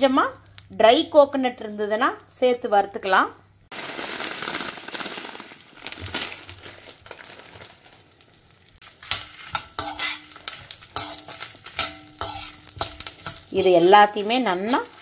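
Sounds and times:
spices sizzling in a pan: 0:00.0 - 0:02.6, 0:03.7 - 0:15.0
metal spoon scraping a pan: 0:08.8 - 0:15.0.

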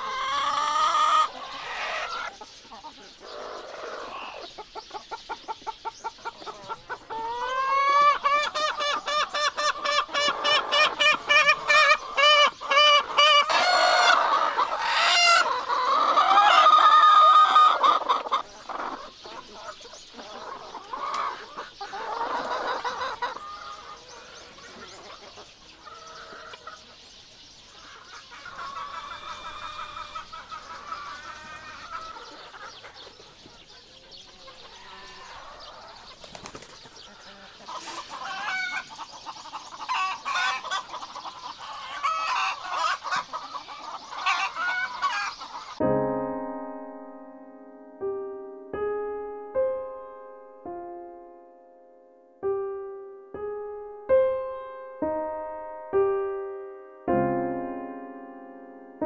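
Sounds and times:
chickens clucking: 0:00.0 - 0:45.9.

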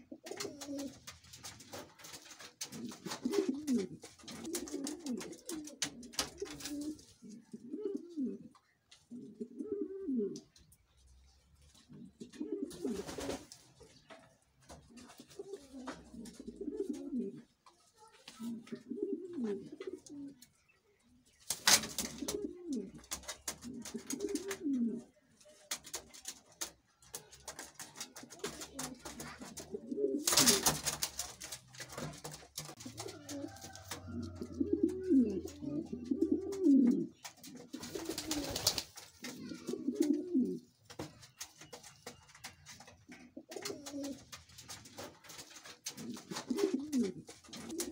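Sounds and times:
pigeons cooing: 0:00.0 - 0:10.6, 0:11.7 - 0:14.1, 0:14.7 - 0:17.6, 0:18.4 - 0:20.6, 0:21.3 - 0:25.2, 0:25.8 - 0:47.9
wings flapping: 0:12.7 - 0:13.8, 0:21.4 - 0:24.6, 0:25.7 - 0:35.6, 0:37.2 - 0:39.7.

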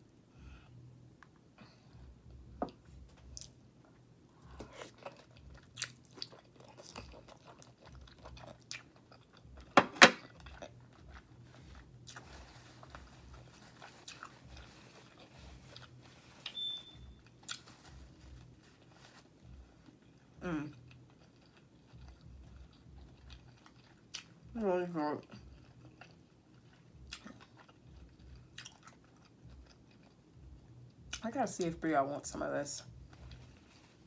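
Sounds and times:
woman chewing wetly: 0:04.4 - 0:18.5, 0:19.4 - 0:24.5, 0:25.4 - 0:31.2.

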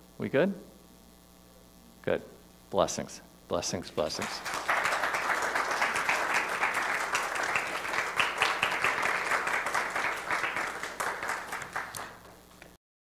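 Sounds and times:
congregation applauding: 0:04.1 - 0:12.5.

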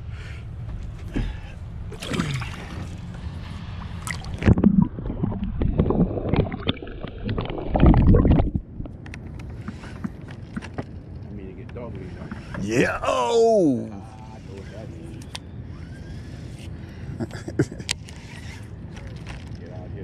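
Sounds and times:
water sloshing and gurgling: 0:00.9 - 0:12.8.

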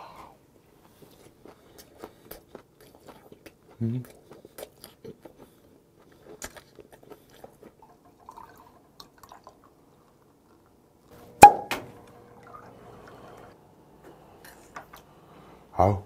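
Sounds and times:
liquid pouring and fizzing: 0:07.8 - 0:09.8.

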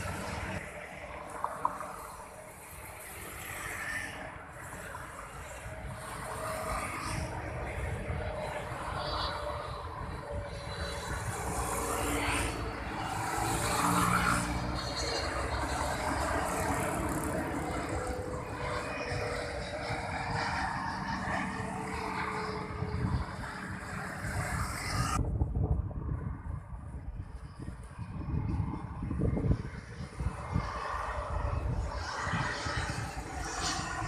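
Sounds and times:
jet engine roar: 0:00.0 - 0:34.0.

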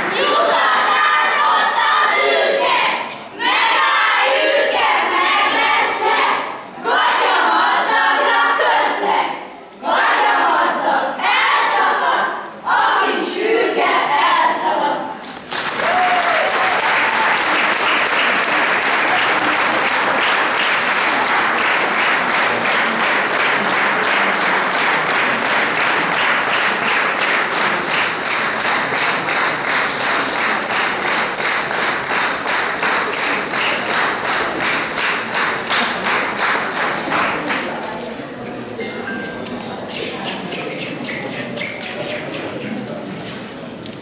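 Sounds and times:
rhythmic clapping in unison: 0:00.0 - 0:01.5, 0:15.2 - 0:38.1, 0:39.2 - 0:44.0
audience applause: 0:15.2 - 0:37.8.

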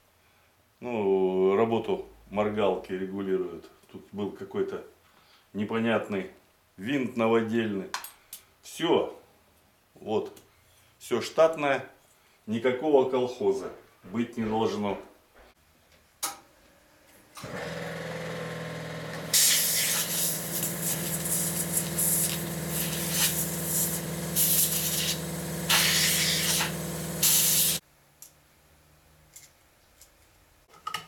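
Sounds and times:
air compressor humming: 0:17.4 - 0:27.8
compressed air hissing bursts: 0:19.3 - 0:27.8.

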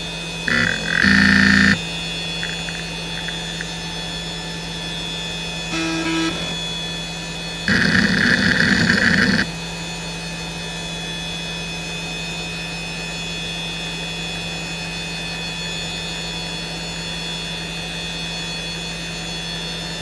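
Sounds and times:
hard drive spinning whine: 0:00.0 - 0:10.1
hard drive head seeking: 0:00.5 - 0:01.8, 0:02.4 - 0:03.7, 0:07.7 - 0:09.5.

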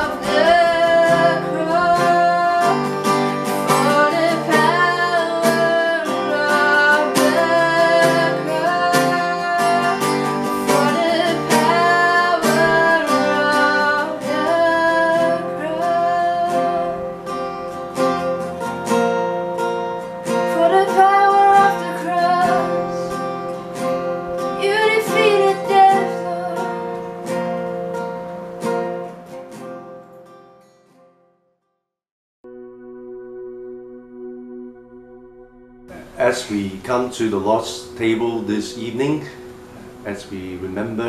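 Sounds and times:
woman singing: 0:00.0 - 0:17.2, 0:20.5 - 0:23.2, 0:24.4 - 0:27.0
acoustic guitar strumming: 0:00.0 - 0:31.2, 0:32.4 - 0:41.0.

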